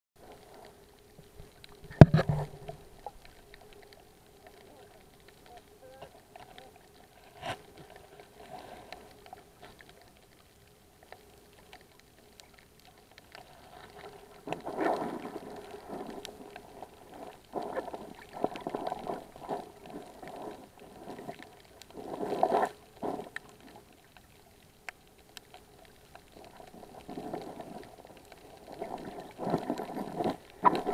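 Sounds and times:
water swishing and gurgling underwater: 0:00.2 - 0:30.9.

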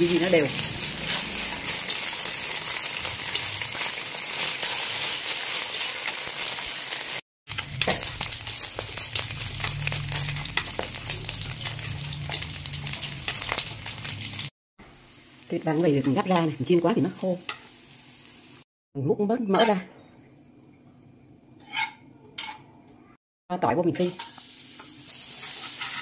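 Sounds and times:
meat sizzling in a pan: 0:00.0 - 0:18.6, 0:24.0 - 0:26.0.

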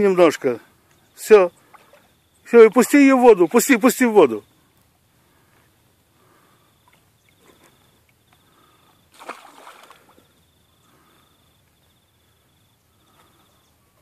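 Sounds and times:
faint water sounds: 0:00.0 - 0:14.0
insect trill: 0:00.0 - 0:14.0
fish splashing in water: 0:08.6 - 0:10.4.

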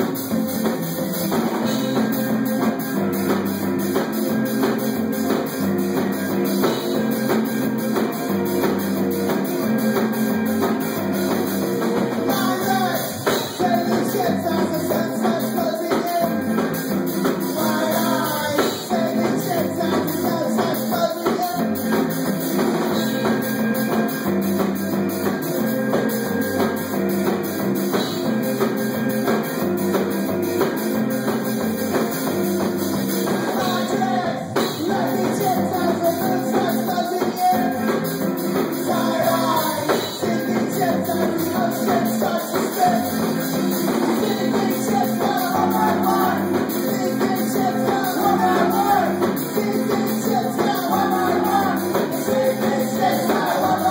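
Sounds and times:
drum kit: 0:00.0 - 0:53.9
electric guitars: 0:00.0 - 0:53.9
person singing: 0:04.0 - 0:24.2, 0:30.6 - 0:53.9.

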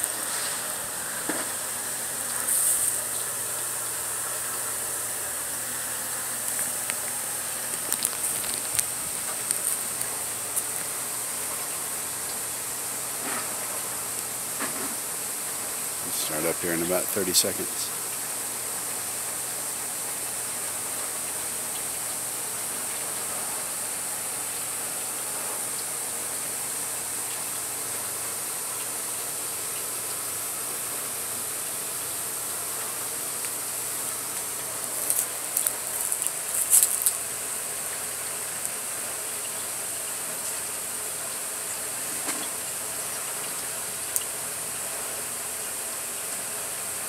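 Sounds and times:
sharp crackles and clicks: 0:00.0 - 0:01.6, 0:02.2 - 0:03.4, 0:06.4 - 0:12.4, 0:33.4 - 0:37.4
high-pitched outdoor hiss: 0:00.0 - 0:47.0.

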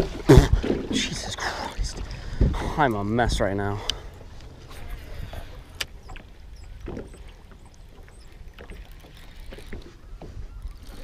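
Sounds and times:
wind on microphone: 0:00.0 - 0:03.6
water lapping against boat hull: 0:00.0 - 0:11.0
light ticks: 0:03.8 - 0:04.5, 0:05.7 - 0:09.8.

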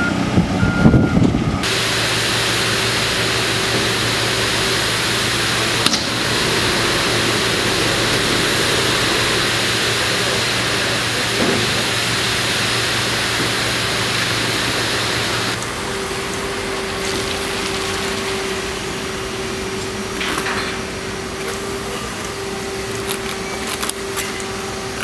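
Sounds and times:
machinery drone: 0:00.0 - 0:25.0
broad hiss: 0:01.6 - 0:15.6.

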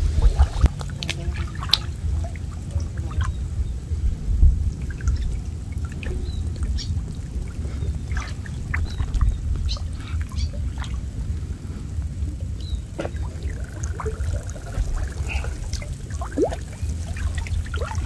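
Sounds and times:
small splashes: 0:00.0 - 0:04.0, 0:04.7 - 0:18.0
low rumble: 0:00.0 - 0:18.0
water pouring off a net: 0:12.9 - 0:18.0.

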